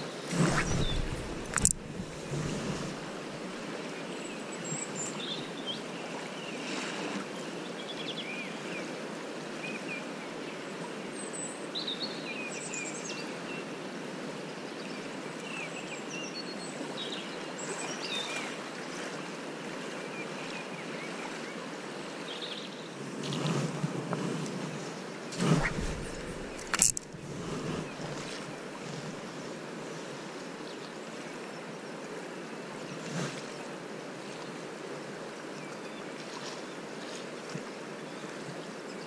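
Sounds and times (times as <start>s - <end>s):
fast-flowing river rushing: 0.3s - 3.8s
short high bird chirps: 0.5s - 2.0s.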